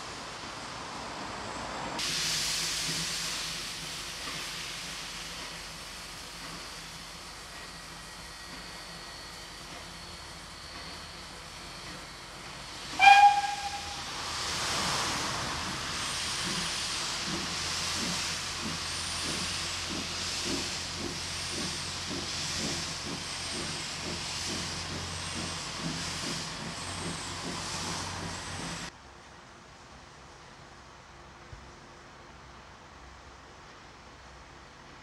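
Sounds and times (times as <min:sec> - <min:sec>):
steam hiss: 0:00.0 - 0:28.9
locomotive exhaust chuffs: 0:02.0 - 0:14.3, 0:15.6 - 0:28.9
steam locomotive whistle: 0:12.9 - 0:14.2.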